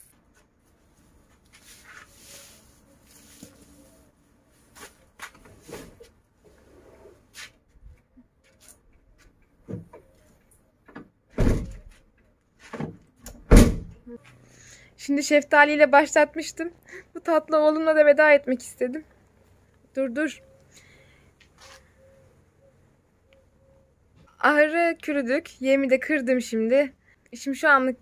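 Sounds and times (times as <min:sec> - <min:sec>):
van rear door slamming: 0:11.3 - 0:11.9, 0:13.4 - 0:13.9.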